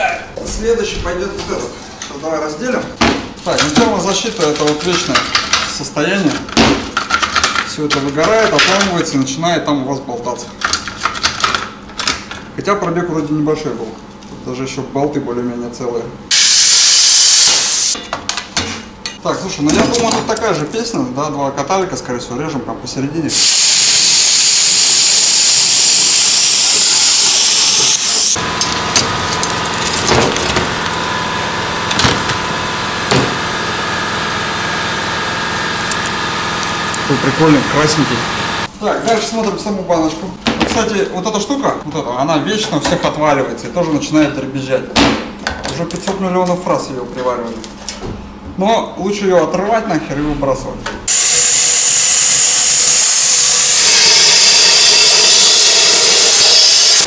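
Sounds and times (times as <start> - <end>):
plasma cutter arc hissing: 16.3 - 18.0, 23.3 - 28.4, 51.1 - 57.0
steady machine hum: 22.8 - 39.0, 50.5 - 57.0.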